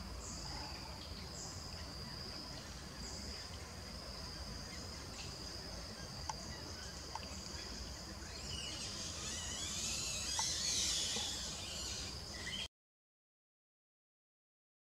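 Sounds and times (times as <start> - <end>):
high insect buzz: 4.4 - 12.7
birds twittering: 4.6 - 12.7.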